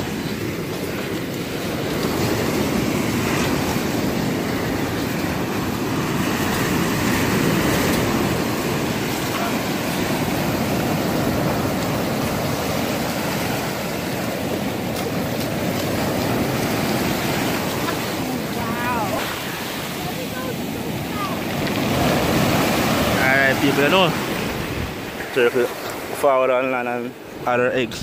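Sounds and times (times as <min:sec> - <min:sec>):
surf washing over sand: 0:00.0 - 0:28.0.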